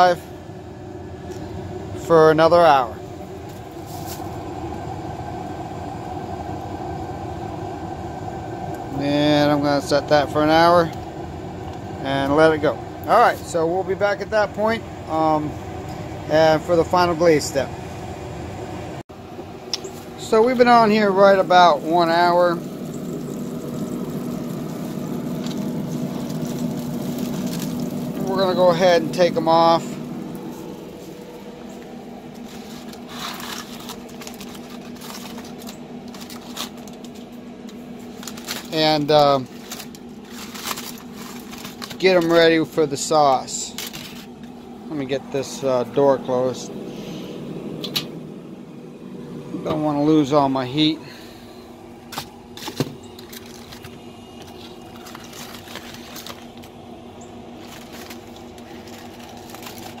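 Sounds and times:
fan humming: 0.0s - 60.0s
aluminium foil crinkling: 22.0s - 29.3s, 29.9s - 44.4s, 52.6s - 56.8s, 57.4s - 60.0s.

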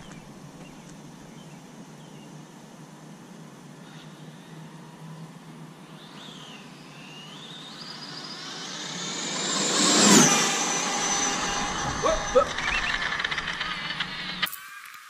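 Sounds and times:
electric rc car motor whine: 6.2s - 15.0s.

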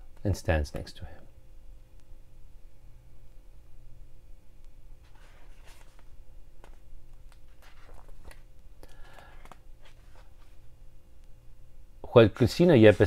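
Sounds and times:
faint steady hum: 0.0s - 13.0s
paper page rustling: 5.0s - 10.6s.

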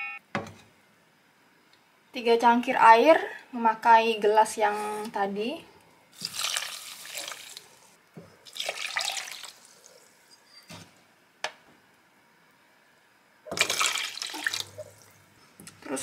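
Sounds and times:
water pouring into a pot: 6.2s - 10.1s, 13.5s - 15.2s.

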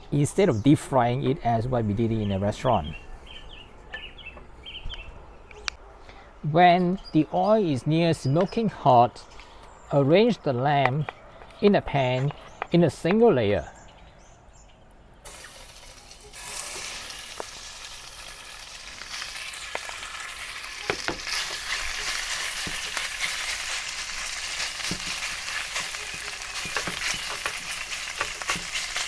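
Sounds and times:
meat sizzling in oil: 15.3s - 29.0s.

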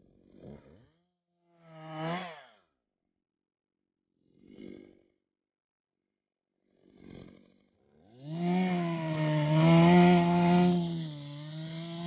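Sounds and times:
chainsaw starting and revving: 1.6s - 2.6s, 8.0s - 12.0s.

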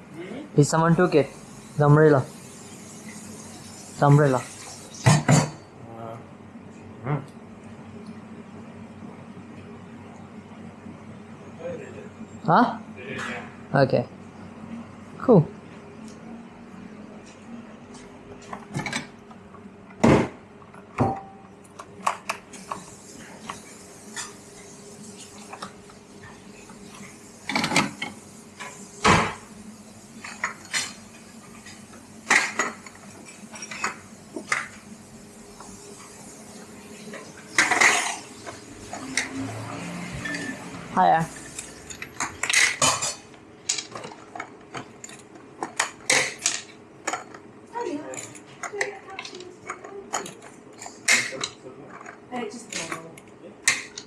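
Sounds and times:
crockery and cutlery clinking: 37.5s - 39.4s.

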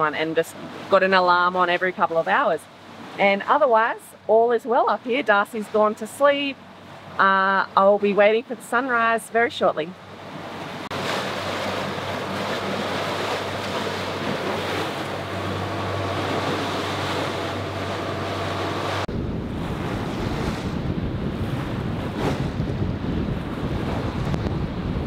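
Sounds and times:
rushing sea: 0.0s - 25.0s
wind: 0.0s - 25.0s
low engine drone: 9.3s - 24.5s
wind buffeting microphone: 10.2s - 25.0s.

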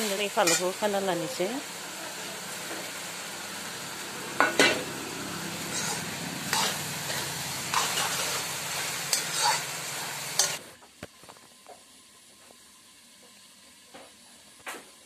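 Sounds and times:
vegetables sizzling in a wok: 0.0s - 15.0s
metal ladle scraping a wok: 0.4s - 0.8s, 5.5s - 10.6s.

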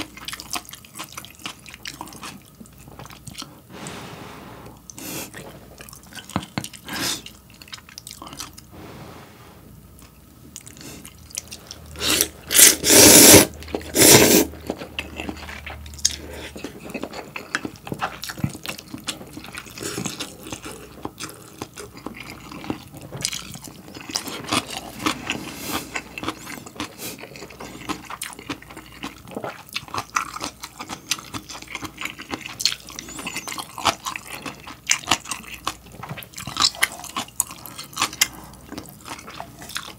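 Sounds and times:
wet chewing: 0.0s - 3.6s, 4.9s - 8.7s, 13.5s - 39.9s
slurping noodles: 10.7s - 14.7s.

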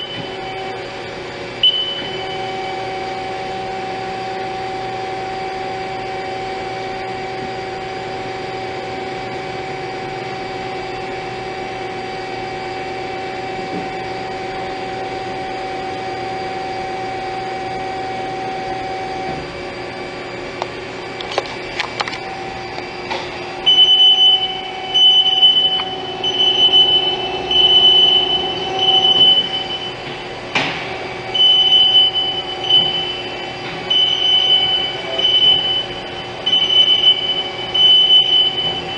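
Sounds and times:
lathe humming: 0.0s - 38.9s
high-pitched squeals: 23.7s - 30.3s.

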